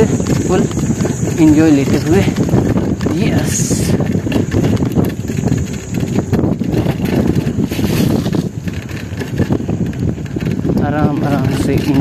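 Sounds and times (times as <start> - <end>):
bike frame rattling: 0.0 - 12.0
bike tyres rumbling on dirt: 0.0 - 12.0
wind buffeting microphone: 0.0 - 12.0.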